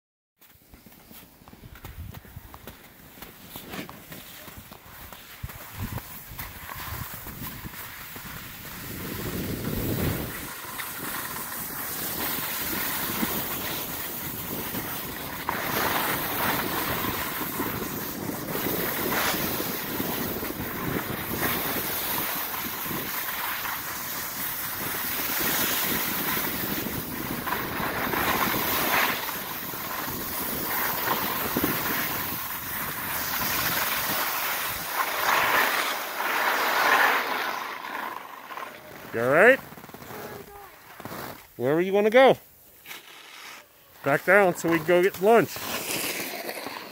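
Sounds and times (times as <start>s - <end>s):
skis scraping over snow: 0.4s - 46.9s
wind on microphone: 5.5s - 23.2s.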